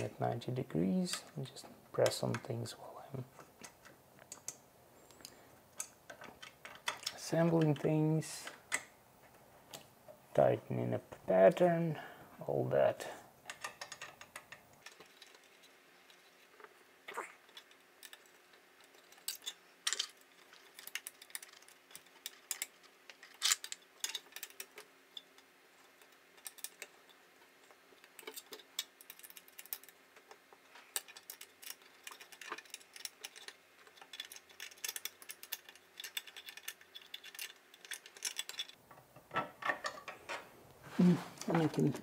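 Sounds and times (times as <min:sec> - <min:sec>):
plastic and metal parts clicking: 0:03.3 - 0:08.9, 0:13.5 - 0:16.8, 0:17.4 - 0:40.4.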